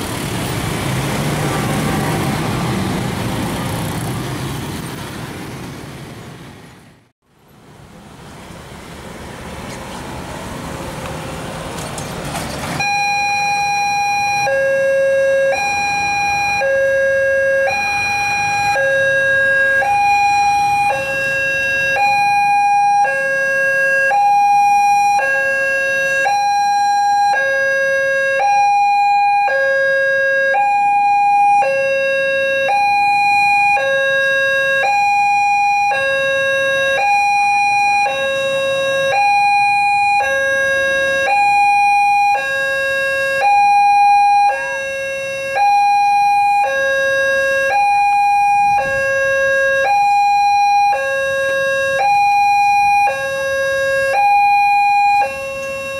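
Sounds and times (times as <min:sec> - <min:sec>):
two-tone electronic warning siren: 0:12.8 - 0:55.9.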